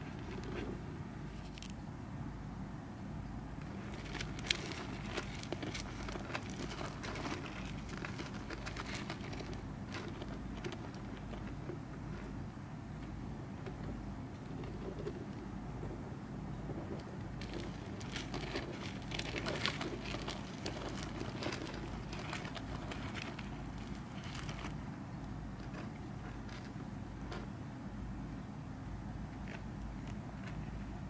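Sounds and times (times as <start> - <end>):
low steady hum: 0.0 - 31.0
soil crackling and scratching: 3.6 - 12.4, 16.8 - 24.9.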